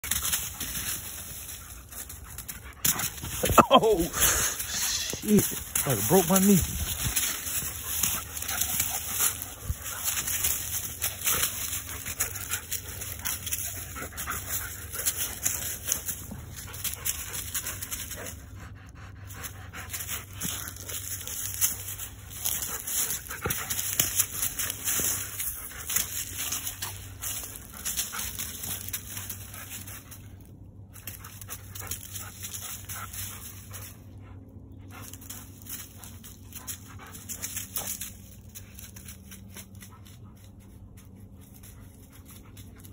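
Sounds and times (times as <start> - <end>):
dry leaves crunching underfoot: 0.0 - 18.2, 19.9 - 33.9
steady low hum: 0.0 - 42.9
dog panting: 4.2 - 30.4, 31.1 - 42.9.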